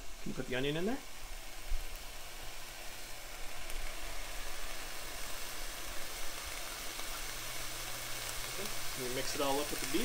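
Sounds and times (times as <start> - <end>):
meat sizzling in a skillet: 0.0 - 10.0.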